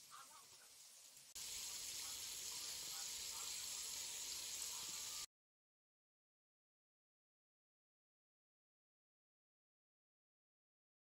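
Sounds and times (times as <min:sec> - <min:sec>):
steady hiss: 0:00.0 - 0:05.3.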